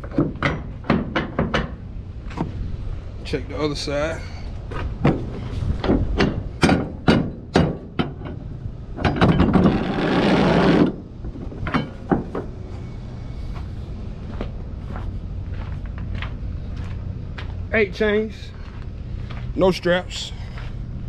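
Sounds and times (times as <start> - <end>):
steady low rumble: 0.0 - 21.0
footsteps crunching on gravel: 12.8 - 20.9.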